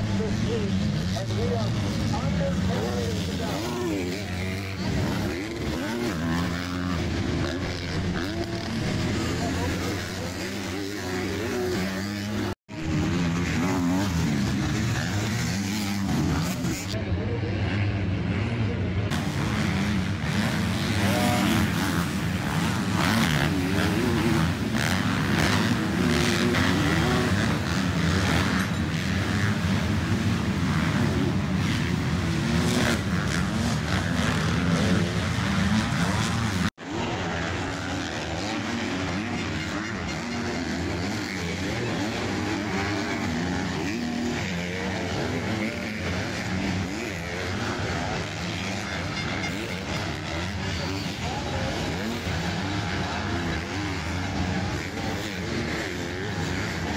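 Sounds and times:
motocross bike engines revving: 0:00.0 - 0:56.9.

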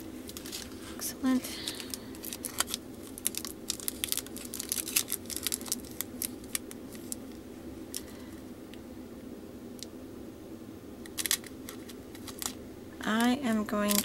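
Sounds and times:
steady low hum: 0:00.0 - 0:14.0
plastic packet crinkling and clicking: 0:00.2 - 0:00.8, 0:01.6 - 0:08.2, 0:11.0 - 0:12.6, 0:13.2 - 0:14.0.

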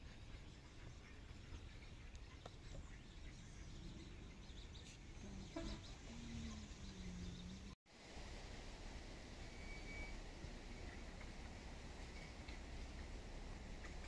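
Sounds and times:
faint bird chirps: 0:00.0 - 0:07.8, 0:09.4 - 0:11.2.

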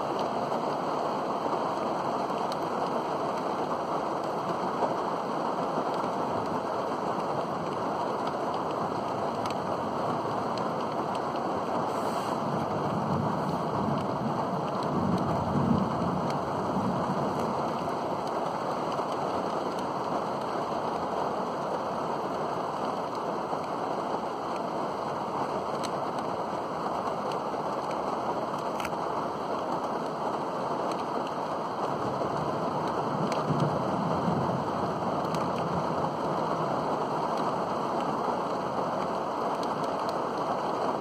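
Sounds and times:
heavy rain: 0:00.0 - 0:41.0
thunder rumbling: 0:11.9 - 0:19.0, 0:32.1 - 0:37.0.

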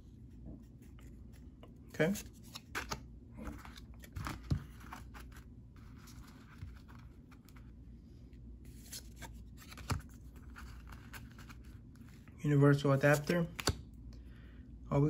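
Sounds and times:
trading cards rustling: 0:02.0 - 0:07.8, 0:08.7 - 0:12.3
card snap: 0:13.5 - 0:13.8.

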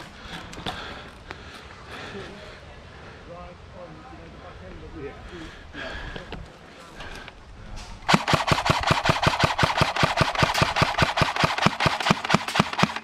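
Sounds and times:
airsoft rifle rapid fire: 0:08.1 - 0:13.0.

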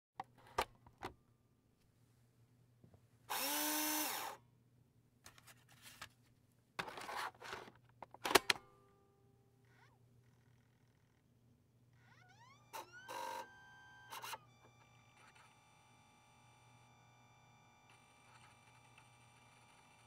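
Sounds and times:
disc drive whirring: 0:12.0 - 0:20.0.

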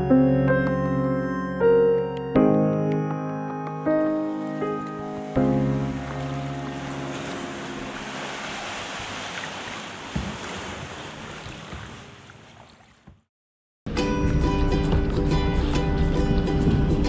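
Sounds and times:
wind: 0:03.6 - 0:13.3
lake water washing: 0:04.0 - 0:13.2.

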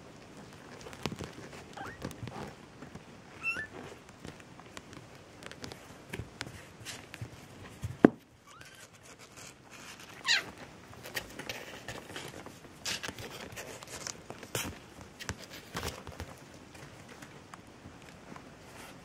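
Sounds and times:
kittens tapping and rustling: 0:00.0 - 0:19.0
kitten mewing: 0:03.4 - 0:03.7.

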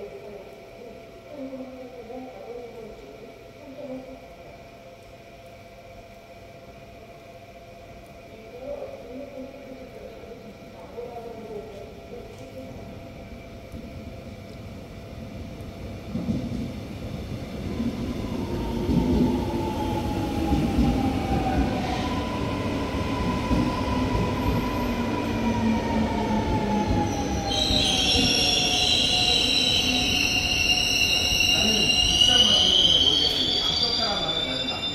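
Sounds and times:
train rumble: 0:08.6 - 0:34.9.

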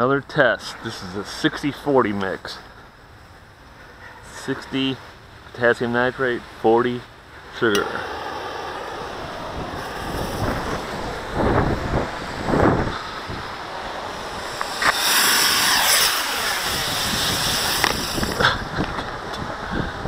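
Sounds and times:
wind buffeting microphone: 0:07.2 - 0:20.0
hissing rush of burning mix: 0:07.4 - 0:19.6.

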